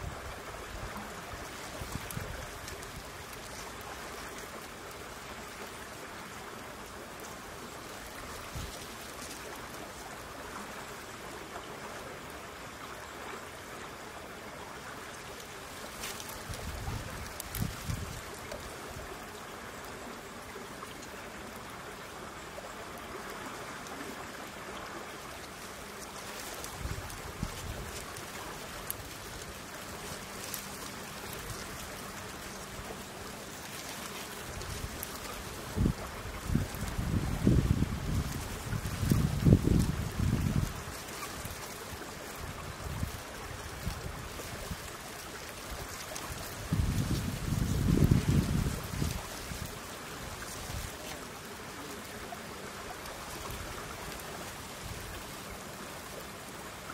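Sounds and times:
outdoor background hiss: 0.0s - 56.9s
faint high ticks: 15.2s - 18.7s, 25.3s - 37.0s
wind buffeting microphone: 35.6s - 40.9s, 46.6s - 49.8s.

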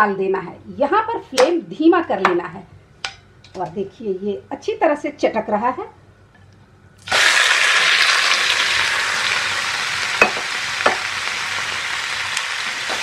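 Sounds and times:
chicken frying in hot oil: 7.0s - 13.0s.

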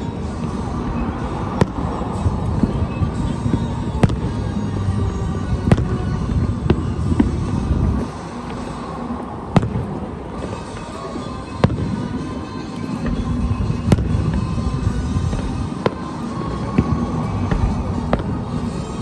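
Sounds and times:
low rumble: 0.0s - 8.6s
firework shells booming: 0.3s - 4.8s, 5.4s - 8.7s, 9.5s - 10.9s, 11.5s - 12.2s, 13.0s - 18.7s.

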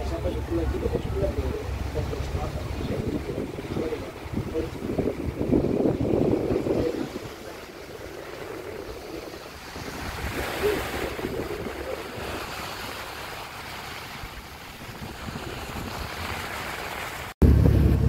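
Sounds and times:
sea water rushing along a ship: 0.0s - 18.0s
wind on microphone: 0.0s - 18.0s.

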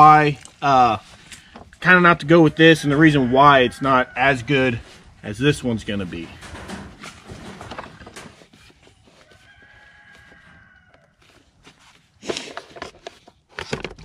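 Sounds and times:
rooster crowing: 2.5s - 4.7s, 9.2s - 11.3s.

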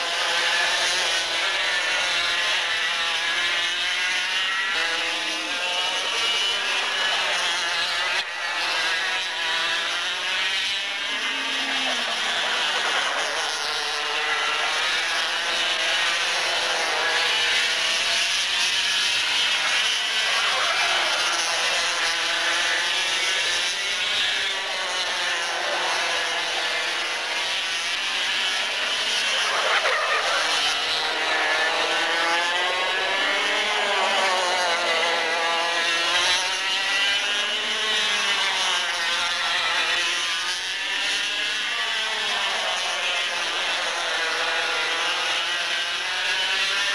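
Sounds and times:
racing kart engines: 0.0s - 46.9s.

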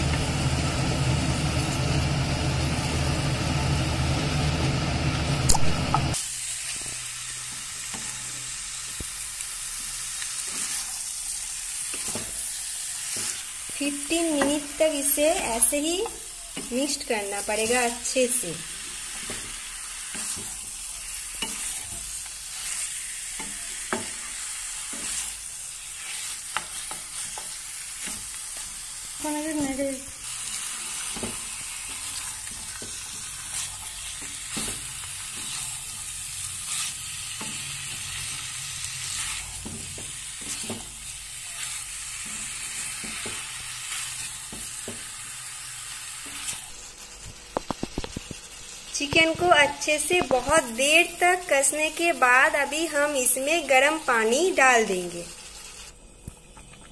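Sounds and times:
meat sizzling in hot oil: 0.0s - 56.8s
wooden spatula scraping pan: 39.1s - 41.0s.

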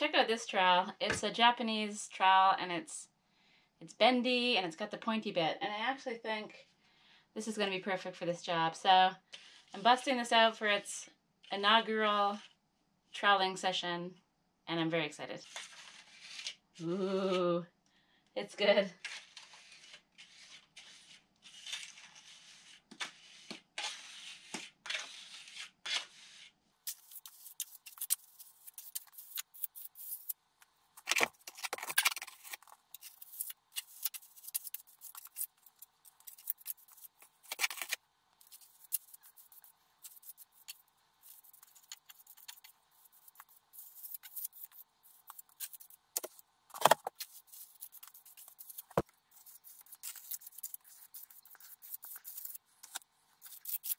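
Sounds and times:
trowel scraping plaster on wall: 19.0s - 30.4s, 31.0s - 53.9s.

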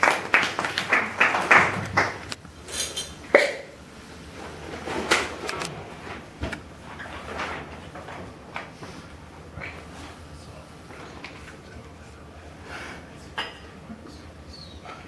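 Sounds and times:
hand claps: 0.0s - 2.4s
objects knocking and clattering: 4.4s - 8.8s.

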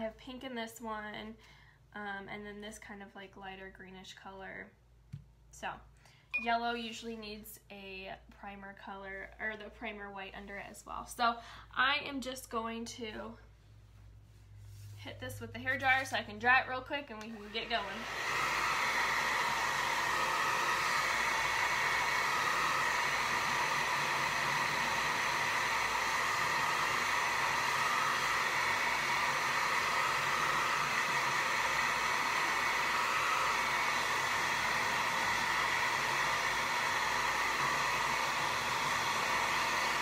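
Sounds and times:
hair dryer running: 17.1s - 40.0s.

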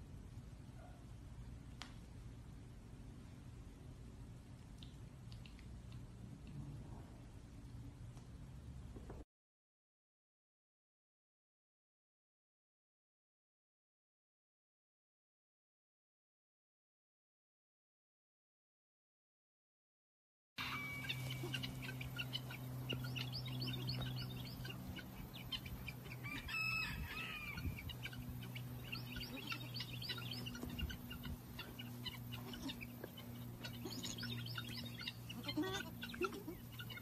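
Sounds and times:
steady low hum: 0.0s - 9.2s, 20.6s - 37.0s
birds chirping: 20.6s - 37.0s.

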